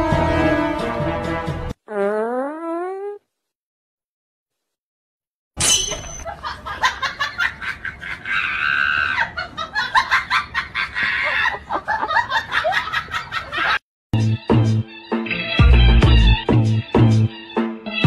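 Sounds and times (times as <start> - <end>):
person laughing hard: 6.3 - 13.8.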